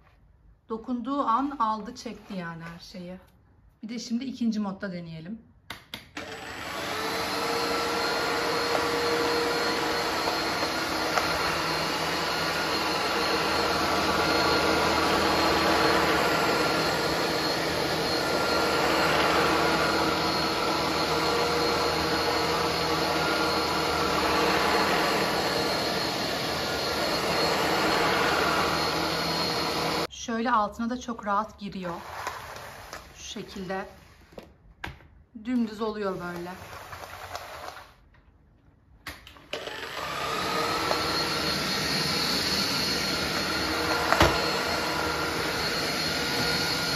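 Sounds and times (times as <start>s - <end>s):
vacuum cleaner motor whine: 6.2s - 30.1s, 31.9s - 33.7s, 39.3s - 46.9s.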